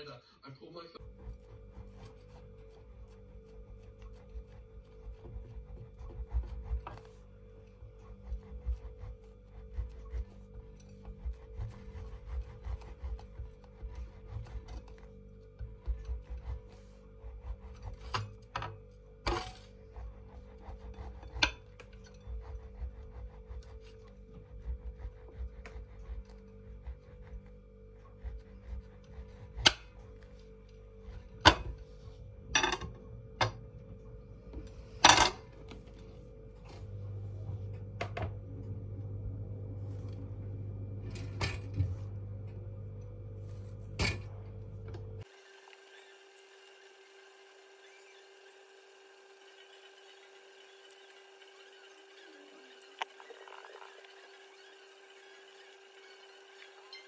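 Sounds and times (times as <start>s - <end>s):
soft background music: 0.1s - 38.0s
knife sawing through bread: 1.0s - 32.2s
low hum: 1.0s - 45.3s
knife scraping ceramic plate: 15.9s - 24.2s, 28.6s - 30.3s.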